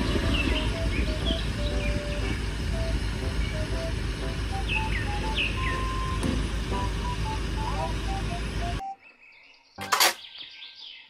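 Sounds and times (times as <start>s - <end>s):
birds chirping: 0.0s - 6.2s, 6.8s - 11.0s
heavy vehicles rumbling: 0.0s - 8.8s.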